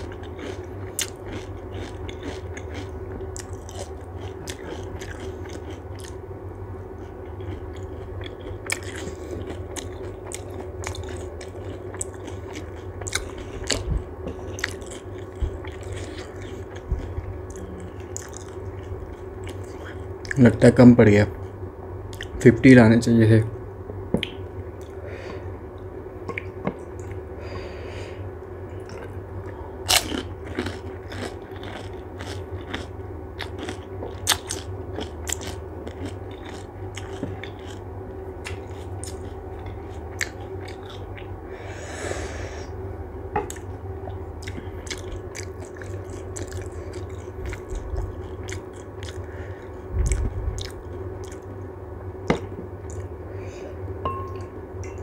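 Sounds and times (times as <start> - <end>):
chewing: 0.0 - 6.2, 7.0 - 20.4, 28.8 - 37.8, 38.4 - 41.3, 43.5 - 51.5, 52.4 - 53.1
steady low hum: 0.0 - 55.0.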